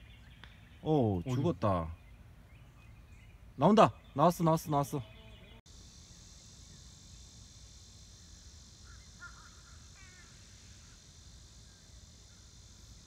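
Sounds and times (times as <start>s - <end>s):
faint bird calls: 0.0s - 6.2s, 8.8s - 13.0s
steady high hiss: 0.0s - 13.0s.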